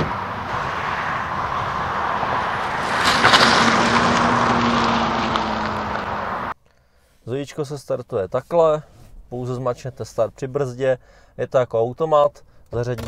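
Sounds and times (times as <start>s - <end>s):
electric car hum: 0.0s - 6.6s
tyre noise on road: 0.0s - 6.6s.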